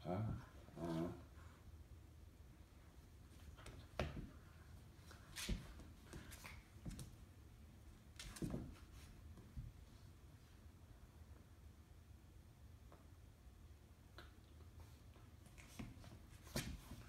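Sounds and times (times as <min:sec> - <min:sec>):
dogs scuffling on hard floor: 0:03.4 - 0:07.2, 0:08.1 - 0:09.8.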